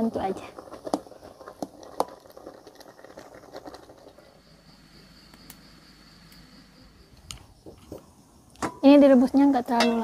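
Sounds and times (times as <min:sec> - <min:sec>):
pot boiling and bubbling: 0:00.0 - 0:10.0
small pops: 0:00.7 - 0:04.2.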